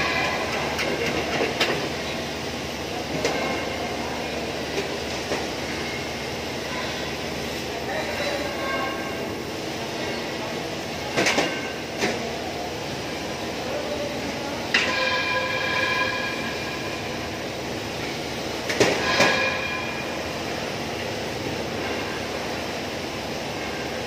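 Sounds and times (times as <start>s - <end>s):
sheet-metal ductwork clanging: 14.7s - 17.0s, 18.7s - 20.2s.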